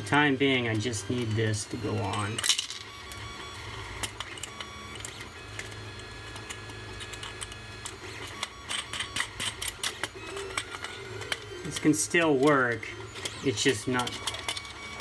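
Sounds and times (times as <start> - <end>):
metal nuts clicking and scraping: 4.0 - 15.0.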